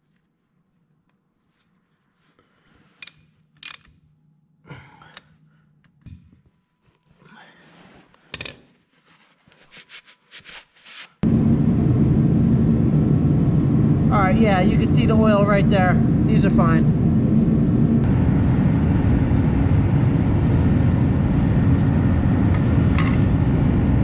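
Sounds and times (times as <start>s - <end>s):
loud diesel engine running: 11.2s - 24.0s.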